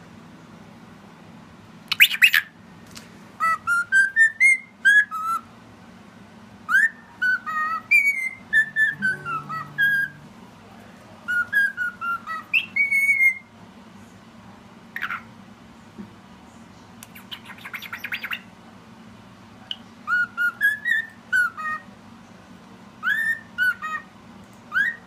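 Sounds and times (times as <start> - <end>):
cockatiel whistling a tune: 1.9 - 2.5, 3.4 - 5.4, 6.7 - 10.2, 11.3 - 13.5, 17.2 - 18.4, 20.0 - 21.9, 23.0 - 24.1, 24.7 - 25.0
harsh bird chirp: 1.9 - 2.5, 6.8 - 10.3, 11.3 - 13.4, 17.2 - 18.5.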